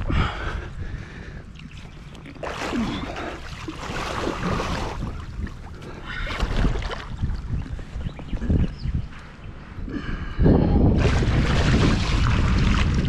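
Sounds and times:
fish thrashing and splashing water: 0:01.6 - 0:07.2, 0:11.0 - 0:13.0.

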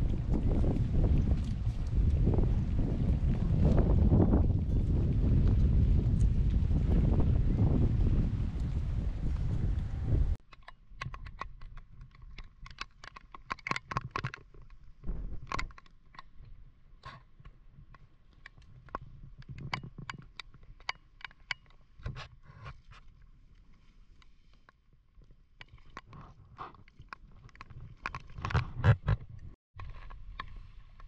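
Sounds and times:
sharp clicks and knocks: 0:10.4 - 0:22.3.

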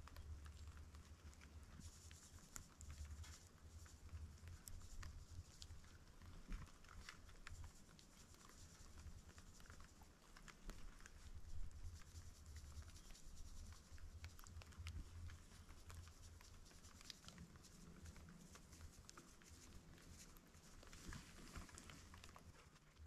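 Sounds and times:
faint light taps and clicks: 0:00.0 - 0:23.0.

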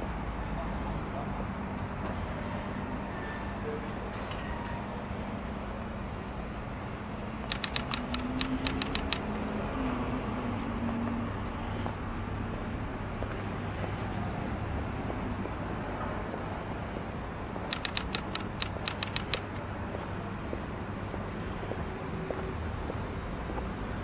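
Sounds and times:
typewriter key clicks: 0:07.5 - 0:09.4, 0:17.7 - 0:19.6.

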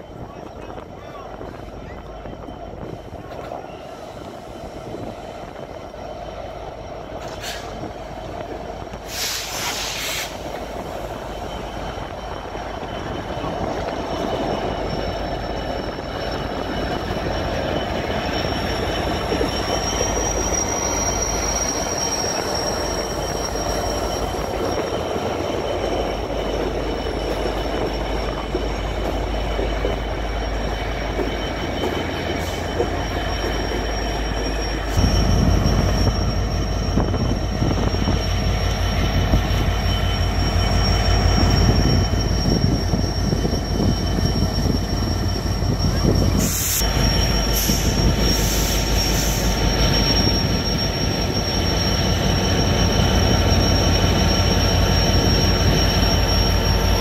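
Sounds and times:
rumble of train cars: 0:00.0 - 0:57.0
train wheels squealing: 0:00.0 - 0:57.0.

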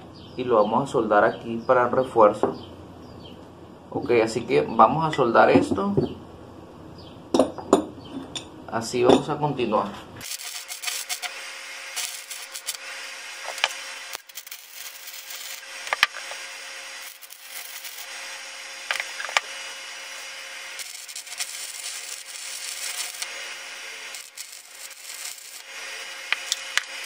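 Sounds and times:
sharp pops of welding arc: 0:10.2 - 0:27.0
welding arc crackling: 0:10.2 - 0:27.0.

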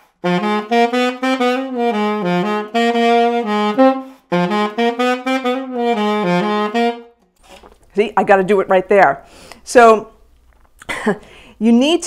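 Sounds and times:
tenor saxophone playing: 0:00.0 - 0:07.3.

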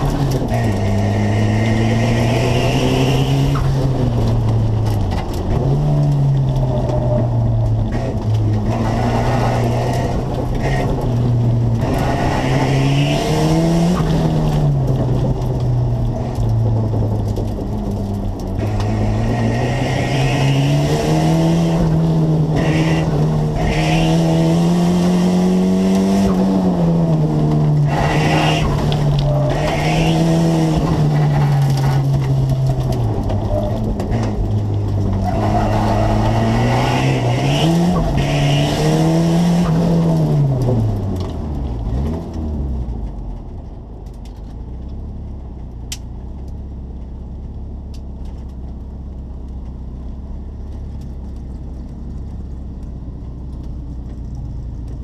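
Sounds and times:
tires squealing: 0:00.0 - 0:17.2, 0:17.8 - 0:41.0
car engine revving: 0:00.0 - 0:43.2.

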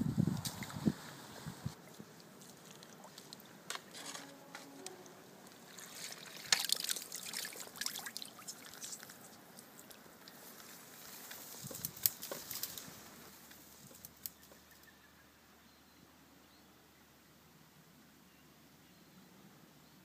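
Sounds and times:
lake water trickling and splashing: 0:00.4 - 0:04.2, 0:05.0 - 0:14.9
small water drips: 0:01.8 - 0:03.6, 0:05.4 - 0:12.8
sharp splashes and crackles: 0:05.5 - 0:14.5.

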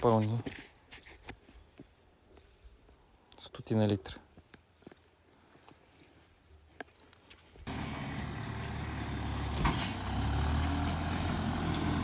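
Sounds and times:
diesel engine running: 0:07.7 - 0:12.0
metallic clank: 0:09.5 - 0:10.1.

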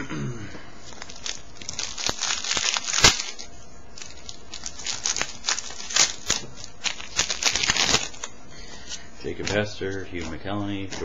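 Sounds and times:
plastic wrapper crinkling and tearing: 0:00.9 - 0:08.3.

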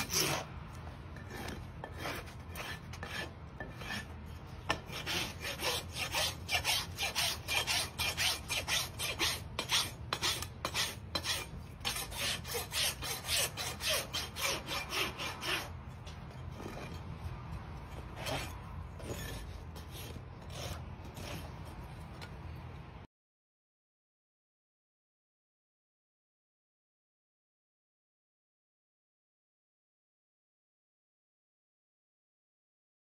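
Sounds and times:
hoof rasp scraping hoof: 0:00.0 - 0:22.6.

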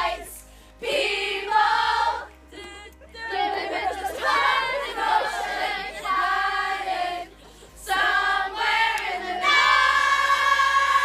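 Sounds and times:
group of voices singing: 0:00.0 - 0:11.0.

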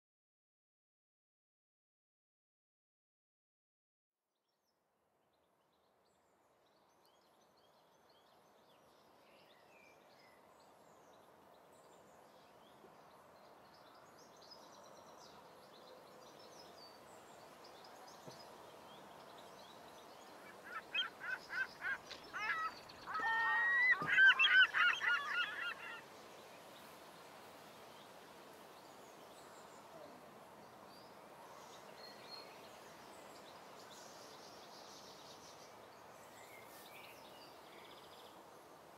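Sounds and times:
distant bird chirps: 0:18.0 - 0:27.0
loud repeated bird calls: 0:20.3 - 0:26.1.

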